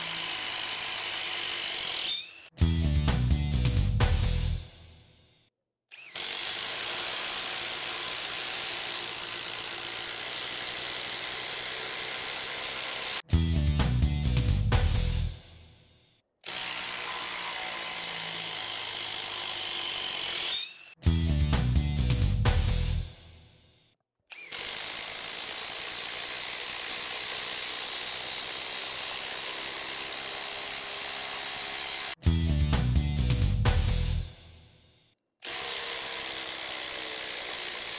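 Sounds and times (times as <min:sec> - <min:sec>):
background music: 0:02.6 - 0:05.0, 0:13.3 - 0:15.6, 0:21.0 - 0:23.5, 0:32.2 - 0:34.7.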